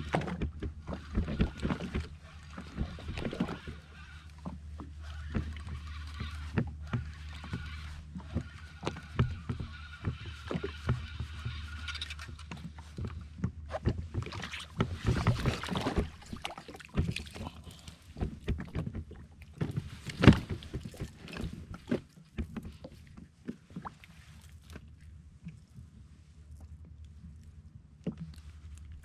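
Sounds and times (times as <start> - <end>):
fishing gear clicking and knocking: 5.2 - 22.8.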